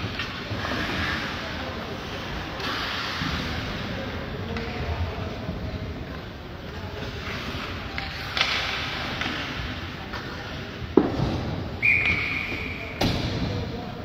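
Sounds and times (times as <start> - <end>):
referee's whistle blast: 11.8 - 13.0.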